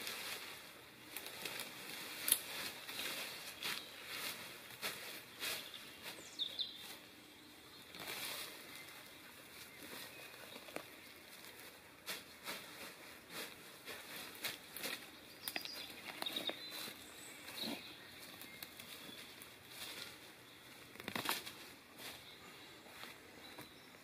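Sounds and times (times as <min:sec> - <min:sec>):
hands rustling dry leaves: 0:00.0 - 0:24.0
twigs crackling and snapping: 0:01.1 - 0:05.6, 0:07.9 - 0:12.6, 0:13.4 - 0:22.1.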